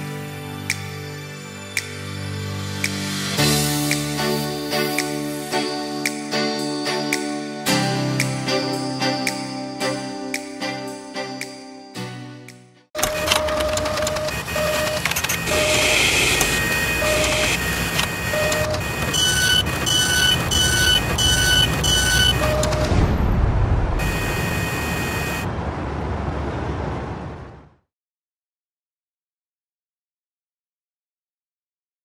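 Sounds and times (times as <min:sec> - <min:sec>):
short electronic beeps: 0:13.0 - 0:23.0, 0:24.0 - 0:25.5
mechanical whirring and clatter: 0:13.0 - 0:25.5
heavy rumble: 0:21.0 - 0:27.8.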